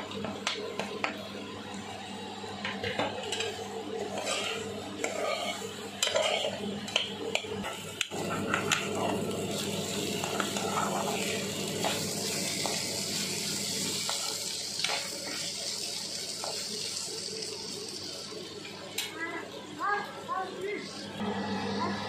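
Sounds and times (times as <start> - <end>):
spatula scraping metal pan: 4.0 - 6.6
food hissing in hot pan: 9.4 - 18.3.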